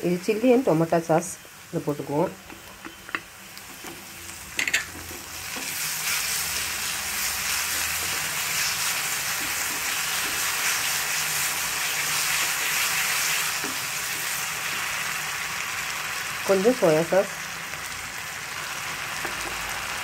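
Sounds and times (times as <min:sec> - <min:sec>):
onions and sauce sizzling: 0:00.0 - 0:20.0
wooden spatula stirring: 0:03.6 - 0:14.8.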